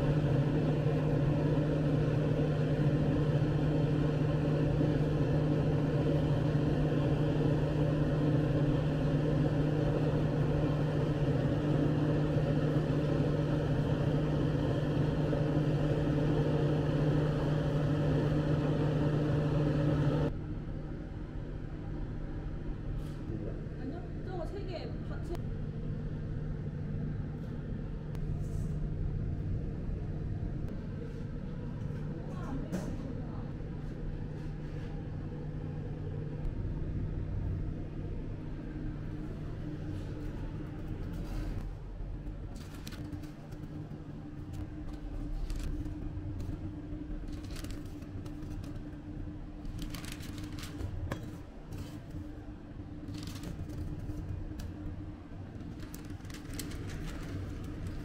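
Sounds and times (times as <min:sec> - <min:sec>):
low mechanical hum: 0:00.0 - 0:58.0
paper wrappers rustling: 0:42.5 - 0:43.7, 0:45.0 - 0:46.5, 0:47.2 - 0:48.8, 0:49.6 - 0:52.2, 0:53.0 - 0:54.6, 0:55.6 - 0:58.0.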